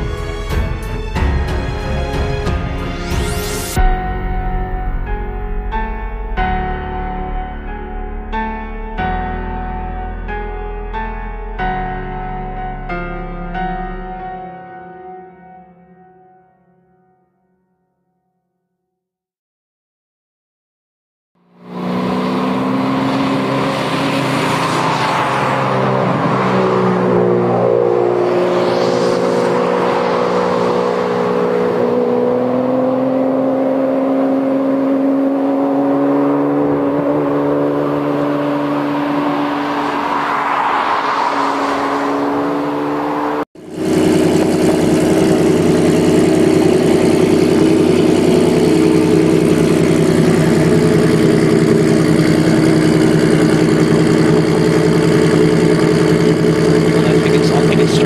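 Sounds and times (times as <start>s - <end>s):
cars passing: 21.4s - 58.0s
sports car accelerating: 21.4s - 58.0s
sports car engine idling: 43.7s - 58.0s.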